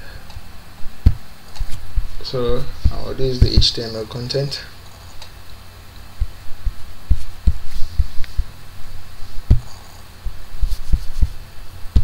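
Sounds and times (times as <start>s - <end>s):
steady low hum: 0.0s - 12.0s
dull low thumps: 0.8s - 3.8s, 6.0s - 12.0s.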